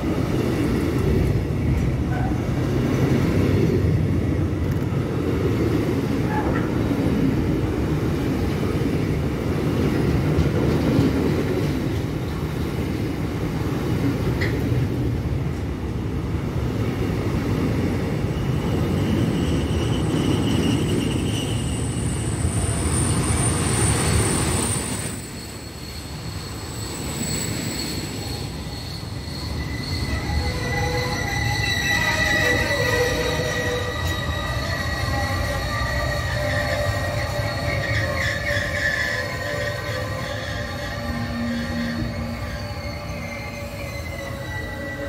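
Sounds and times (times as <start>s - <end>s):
train wheels rumbling on rail: 0.0s - 45.0s
high wheel squeal: 18.2s - 45.0s.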